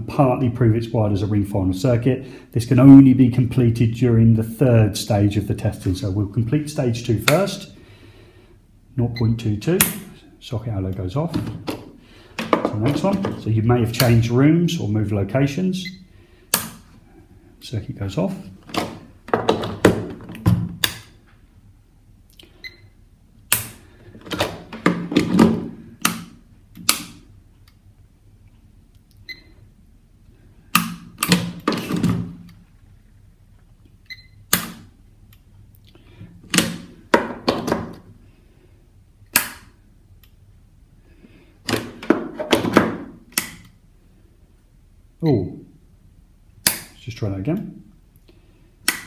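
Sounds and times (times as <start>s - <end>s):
rocker switches clicking: 26.0s - 27.8s, 34.1s - 35.4s, 39.3s - 40.4s, 43.3s - 43.8s, 46.6s - 47.0s.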